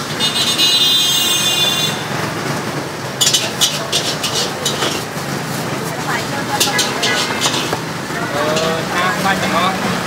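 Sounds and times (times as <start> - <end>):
traffic noise: 0.0 - 10.0
dishes and utensils clinking: 3.2 - 9.7.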